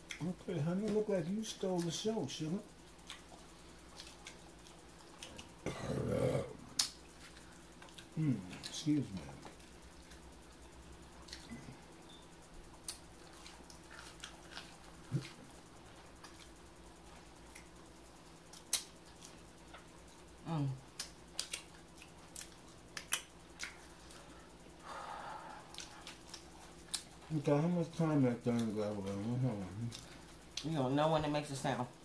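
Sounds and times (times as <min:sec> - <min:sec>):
crunching while chewing: 0:02.8 - 0:11.9, 0:12.5 - 0:24.7, 0:25.4 - 0:27.4, 0:28.4 - 0:30.7
lip smacks and mouth clicks: 0:06.8 - 0:08.8, 0:11.2 - 0:11.5, 0:17.5 - 0:17.8, 0:18.5 - 0:19.9, 0:20.9 - 0:23.9, 0:25.7 - 0:27.2.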